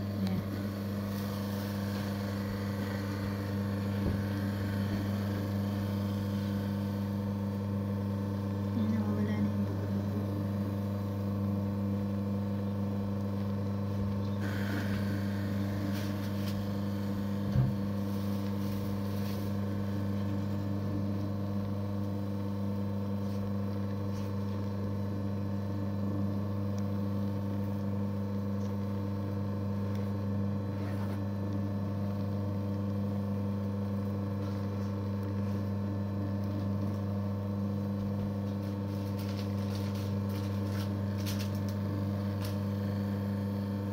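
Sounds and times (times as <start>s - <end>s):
motor humming: 0.0s - 43.9s.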